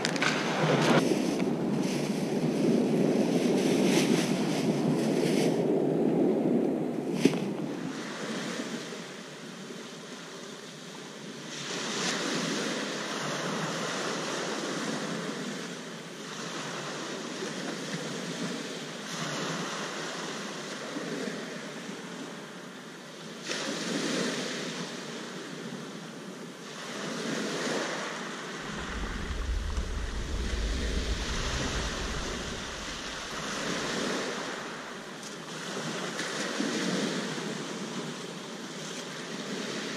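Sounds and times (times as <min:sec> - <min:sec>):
wind rumble on microphone: 0:00.0 - 0:09.6, 0:27.0 - 0:38.2.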